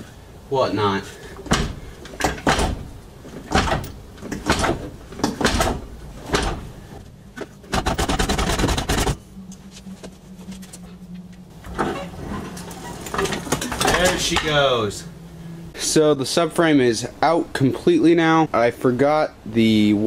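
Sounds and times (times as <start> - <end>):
metal clunks of jack pumping: 1.4 - 6.7
fast metal rattling: 7.7 - 9.2.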